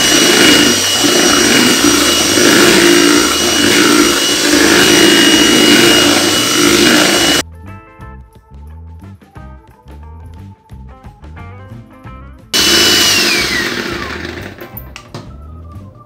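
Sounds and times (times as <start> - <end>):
electric hand mixer whining: 0.0 - 7.4, 12.6 - 14.8
soft music: 7.4 - 12.6, 14.5 - 16.0.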